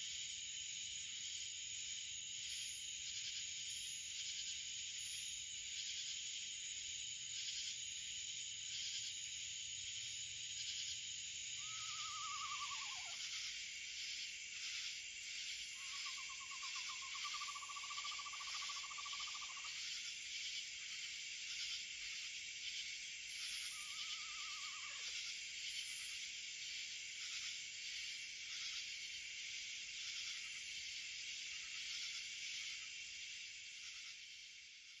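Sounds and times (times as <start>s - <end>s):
insects chorus: 0.0s - 35.0s
owl quavering whinny: 11.6s - 13.3s, 23.7s - 25.1s
higher insect shrill: 11.6s - 13.6s, 23.4s - 25.3s.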